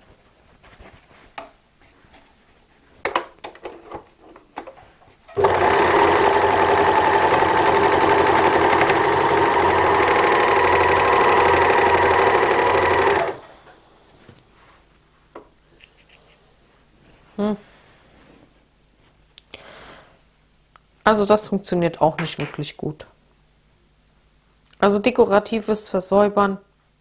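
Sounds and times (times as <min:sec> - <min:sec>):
overlock sewing machine running: 0:05.4 - 0:14.0.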